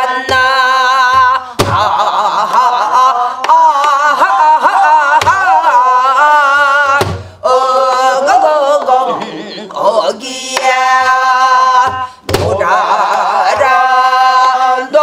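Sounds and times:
barrel drum strikes: 7.0 - 7.3.

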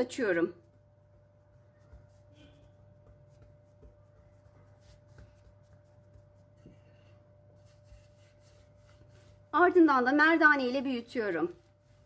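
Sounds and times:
hands tapping and pressing dough: 1.4 - 9.4.

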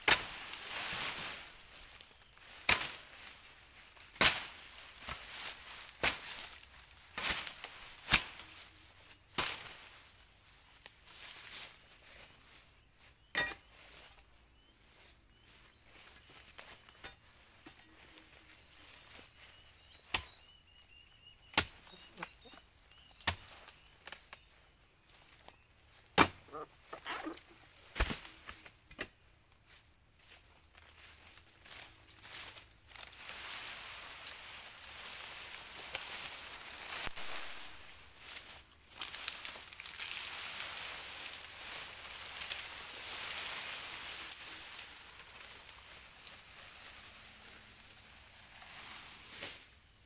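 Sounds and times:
high buzz of insects: 0.0 - 50.0
blade chopping into palm: 26.2 - 26.4.

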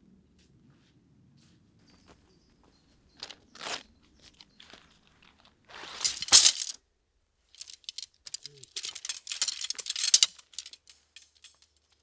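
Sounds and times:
dry leaves crunching: 4.6 - 6.8.

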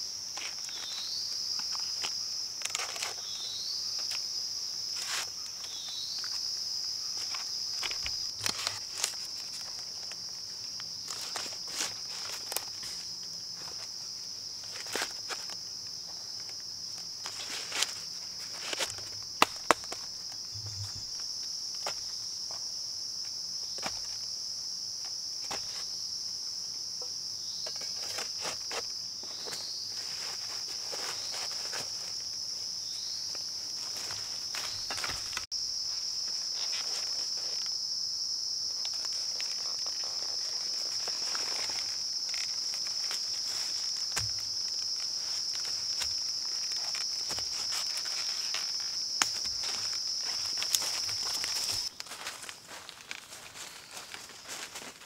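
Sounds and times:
forest insects droning: 0.0 - 55.0
dry leaves rustling: 4.9 - 22.1, 28.0 - 37.7, 38.7 - 55.0.

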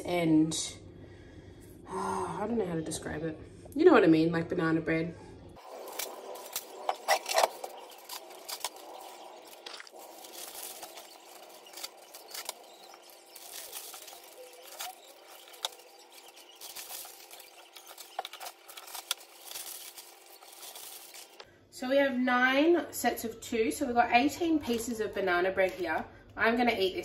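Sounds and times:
plastic wrapping crinkling: 5.6 - 21.4.

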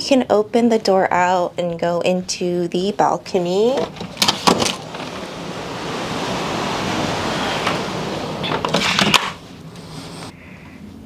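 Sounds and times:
door clicks and knocks: 3.8 - 4.9
rush of wind and sea: 3.8 - 9.5.

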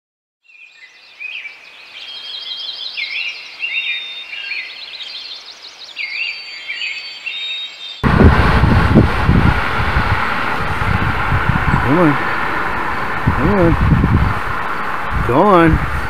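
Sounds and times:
songbirds singing: 0.4 - 8.0.

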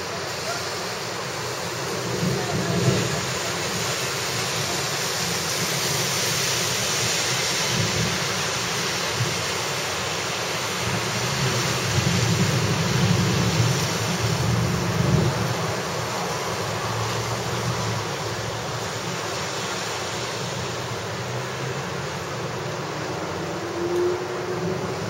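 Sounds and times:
heavy rain hissing: 0.0 - 25.0
wind buffeting microphone: 10.8 - 19.2.

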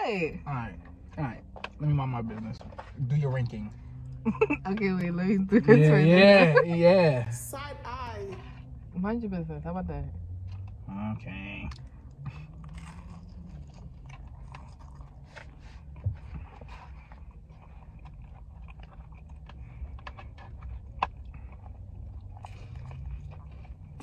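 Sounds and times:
low hum: 0.0 - 24.0
person chewing crunchy food: 11.7 - 24.0.

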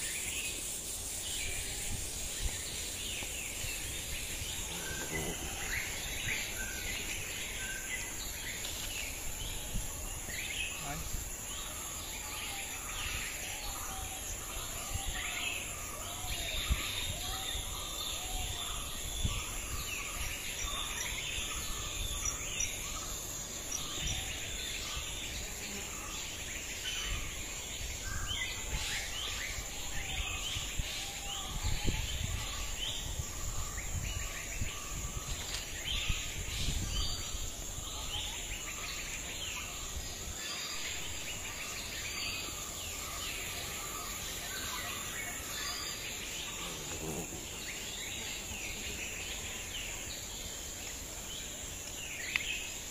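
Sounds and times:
birds chirping and calling: 0.0 - 52.9
wind rumble on microphone: 1.3 - 11.8, 12.9 - 23.0, 27.0 - 38.8.

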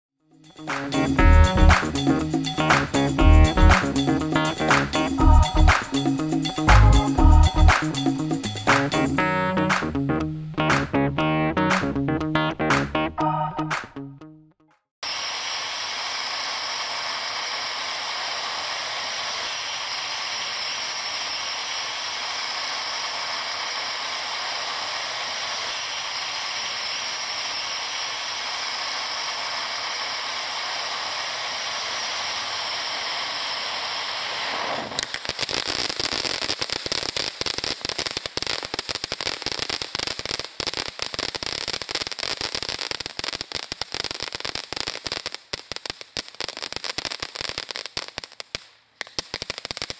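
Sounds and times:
firework rapid crackling: 0.6 - 9.1, 15.0 - 49.9
firework hissing spray of sparks: 15.0 - 49.9.

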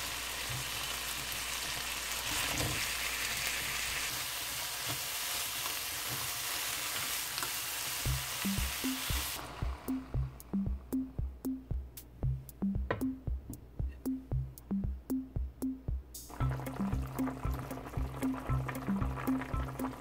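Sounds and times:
vegetables sizzling in a pan: 0.0 - 10.1, 16.3 - 20.0
spatula turning food in pan: 0.0 - 10.4
drum machine beat: 8.1 - 20.0.

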